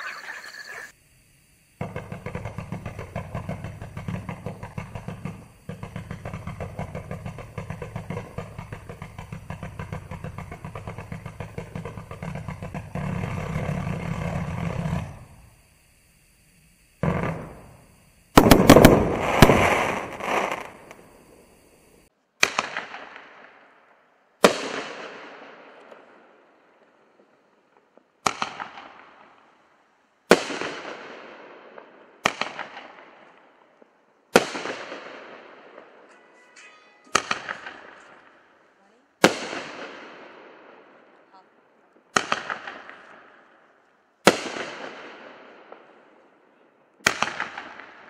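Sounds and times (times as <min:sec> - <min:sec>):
firework crackle: 0:00.0 - 0:29.5, 0:30.2 - 0:40.2, 0:47.0 - 0:48.0
firework cake rapid volley: 0:01.8 - 0:15.6, 0:16.4 - 0:23.6, 0:30.3 - 0:33.5, 0:34.3 - 0:43.5, 0:44.2 - 0:48.0
loud firework bangs: 0:01.8 - 0:15.6, 0:17.0 - 0:21.8, 0:24.4 - 0:26.1, 0:30.3 - 0:33.3, 0:34.3 - 0:36.0, 0:37.1 - 0:38.5, 0:39.2 - 0:41.1, 0:42.1 - 0:43.4, 0:44.2 - 0:46.0, 0:47.0 - 0:48.0.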